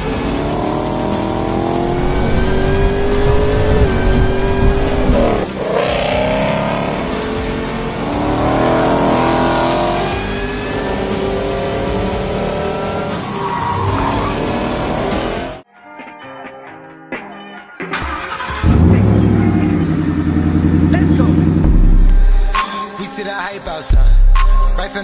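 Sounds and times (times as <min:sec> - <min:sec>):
sports car engine revving: 0:00.0 - 0:15.6, 0:18.6 - 0:22.6
rush of noise: 0:01.7 - 0:05.5.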